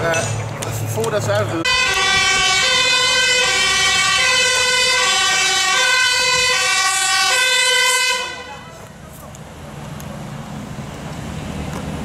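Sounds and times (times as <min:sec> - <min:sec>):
fire engine two-tone siren: 0:01.7 - 0:08.9.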